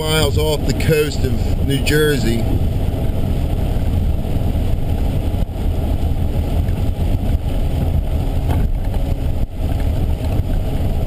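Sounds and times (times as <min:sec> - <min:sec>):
car driving on wet road: 0:00.0 - 0:11.0.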